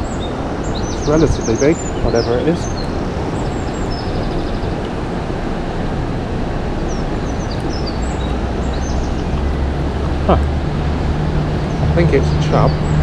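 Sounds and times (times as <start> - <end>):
small birds chirping: 0.0 - 6.0, 6.6 - 13.0
low rushing outdoor noise: 0.0 - 13.0.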